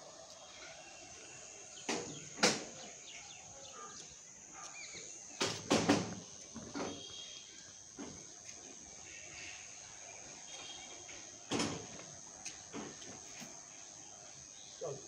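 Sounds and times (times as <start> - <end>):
sharp knocks: 5.4 - 7.0.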